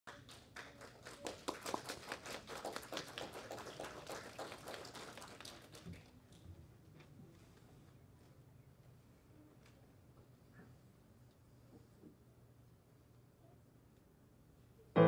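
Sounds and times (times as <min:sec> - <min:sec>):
audience clapping: 0:00.1 - 0:06.2.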